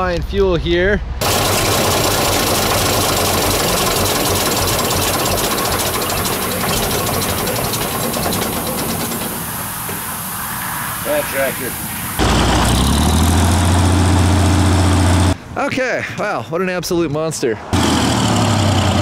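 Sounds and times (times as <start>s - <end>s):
rapid even ticking: 1.2s - 9.9s
diesel tractor engine running: 1.2s - 15.4s.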